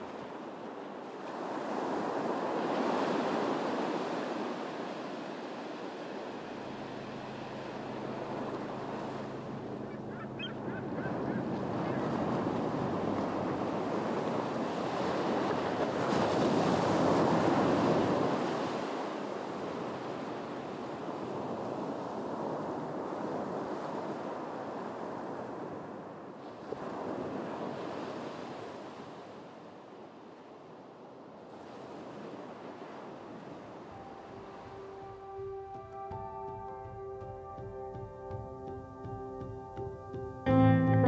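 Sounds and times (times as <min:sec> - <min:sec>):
waves breaking over rocks: 0:00.0 - 0:20.2.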